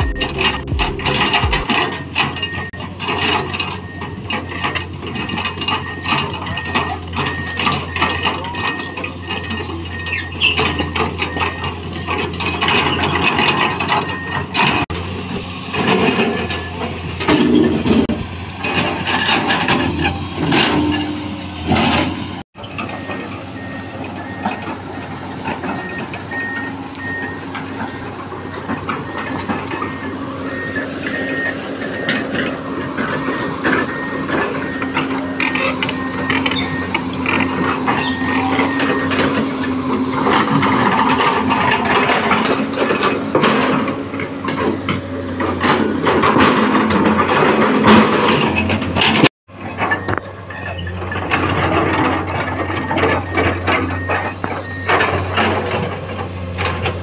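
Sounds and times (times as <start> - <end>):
high warning alarm beeps: 0.0 - 2.8, 29.0 - 39.4, 52.2 - 55.0
excavator diesel engine: 0.0 - 57.0
machine and rocks clanking: 0.0 - 57.0.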